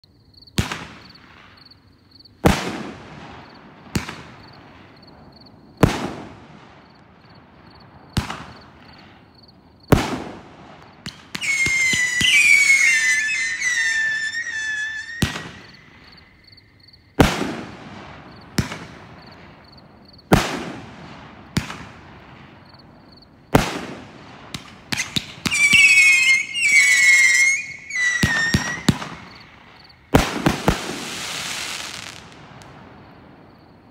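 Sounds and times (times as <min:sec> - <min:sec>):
fireworks bangs: 0:00.6 - 0:01.8, 0:02.4 - 0:33.9
shrill wavering firework whistle: 0:11.1 - 0:16.6, 0:24.9 - 0:30.0, 0:30.6 - 0:32.4.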